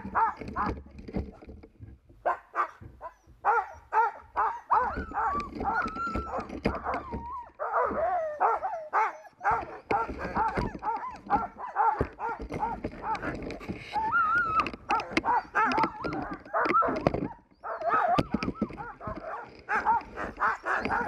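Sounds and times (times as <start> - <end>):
sled dogs yipping and whining: 0.0 - 21.0.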